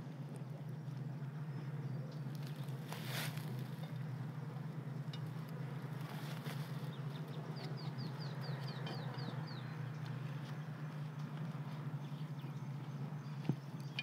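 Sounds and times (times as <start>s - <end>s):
steady low hum: 0.0s - 14.0s
bird chirping: 6.8s - 11.3s.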